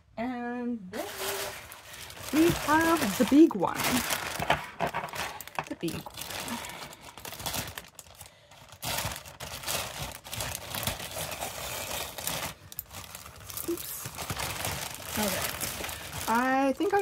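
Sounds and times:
plastic bag crinkling: 1.0 - 17.0
scissors cutting plastic: 8.9 - 17.0.

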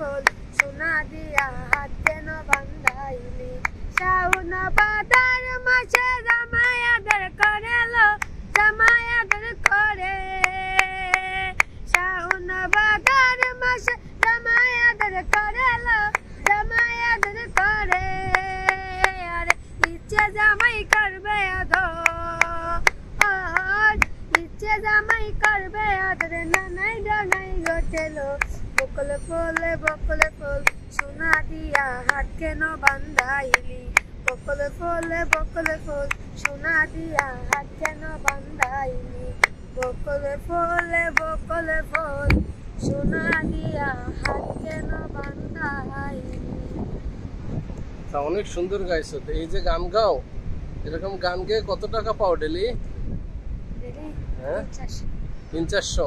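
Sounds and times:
girl singing: 0.0 - 46.8
hands clapping: 35.0 - 36.6, 40.7 - 41.3.

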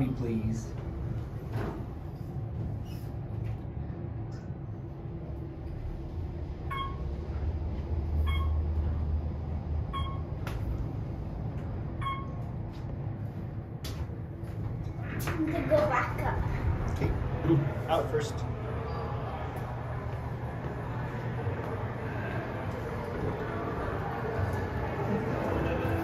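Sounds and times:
elevator car rumbling: 0.0 - 26.0
short electronic beeps: 6.7 - 7.1, 8.2 - 8.7, 9.9 - 10.3, 12.0 - 12.4.

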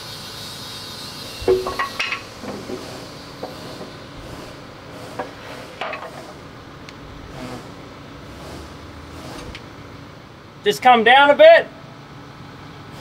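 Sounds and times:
steady background noise: 0.0 - 13.0
light metallic clinks and knocks: 1.3 - 6.3.

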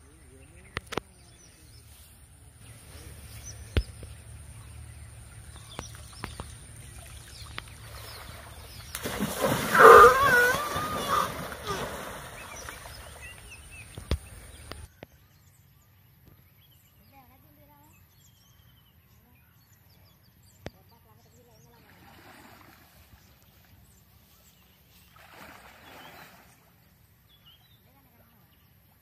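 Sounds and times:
birds chirping faintly: 0.0 - 29.0
elephant splashing water: 2.8 - 14.9, 21.8 - 23.4, 25.0 - 26.8.

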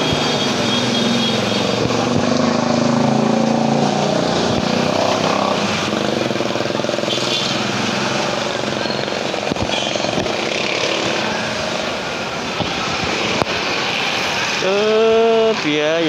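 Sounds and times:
cars and motorcycles passing: 0.0 - 16.0.

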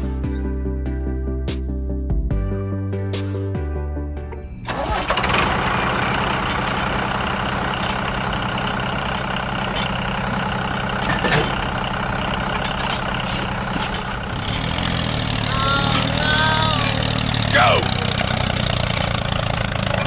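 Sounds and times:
music: 0.0 - 5.1
tractor engine running: 4.5 - 20.0.

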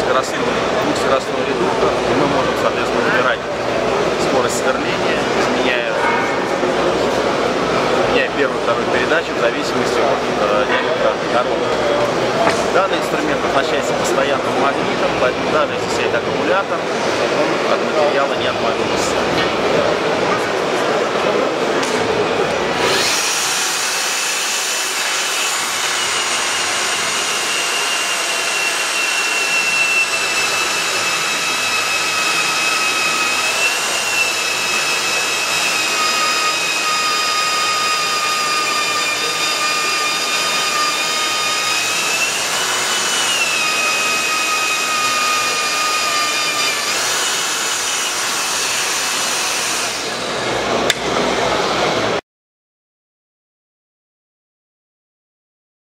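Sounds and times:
magnetic drill boring into steel: 22.7 - 50.3.

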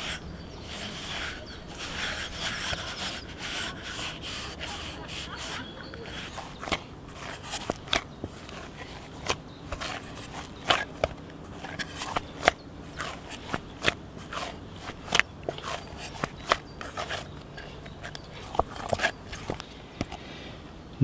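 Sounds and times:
dough kneaded by hand in pot: 0.0 - 19.6.

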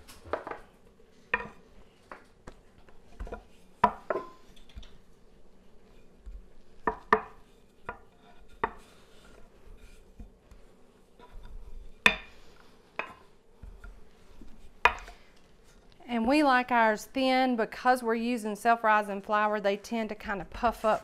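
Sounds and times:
rolling pin knocking on wooden board: 6.3 - 8.9.

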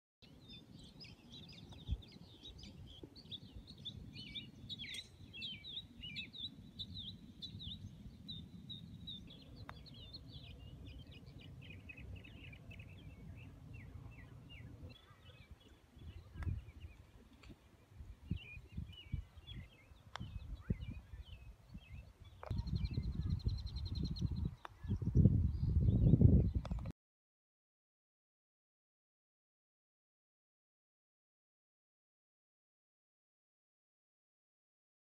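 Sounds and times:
birds chirping: 0.2 - 26.9
wind on microphone: 1.0 - 6.2, 15.4 - 26.9.

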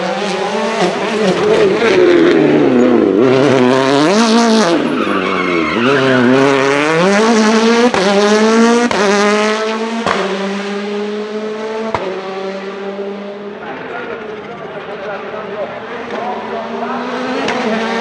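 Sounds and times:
rally car engine revving: 0.0 - 18.0
tyres squealing: 4.8 - 6.7.

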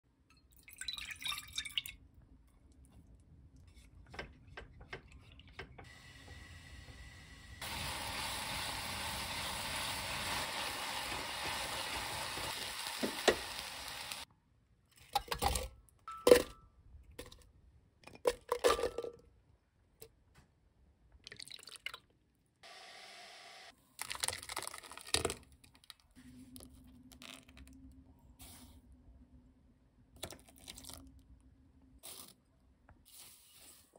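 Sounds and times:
liquid pouring into steel bowl: 0.4 - 2.0
paste simmering with steady hiss: 5.9 - 14.3.

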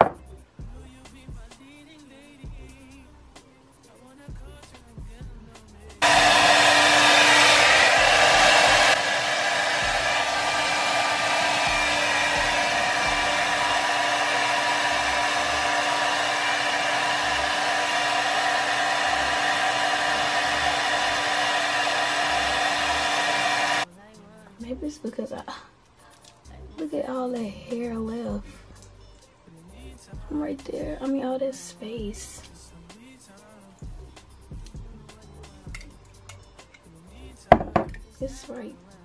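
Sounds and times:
hair dryer blowing: 6.0 - 23.9, 37.5 - 37.9.

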